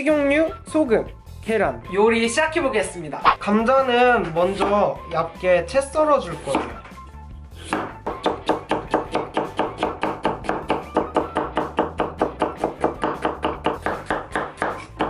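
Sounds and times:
knife chopping on wooden board: 0:06.4 - 0:06.8, 0:07.6 - 0:15.0.

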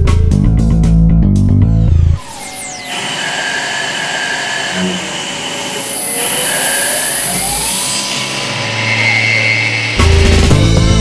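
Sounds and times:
lathe machining whine and hiss: 0:02.3 - 0:10.0.

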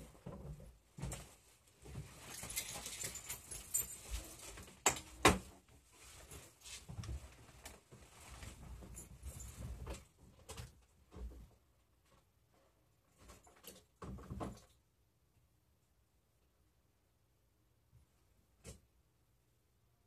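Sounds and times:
handling noises rustling: 0:00.2 - 0:13.8.

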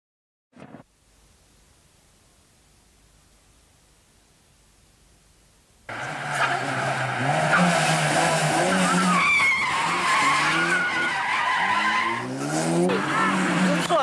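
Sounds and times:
rally car engine revving: 0:05.9 - 0:14.0
tyres squealing: 0:05.9 - 0:14.0.

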